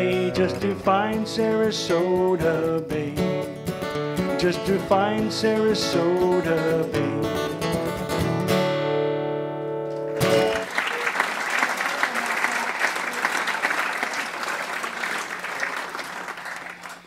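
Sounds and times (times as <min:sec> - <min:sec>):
acoustic guitar strumming: 0:00.0 - 0:10.6
audience applauding: 0:09.9 - 0:17.0.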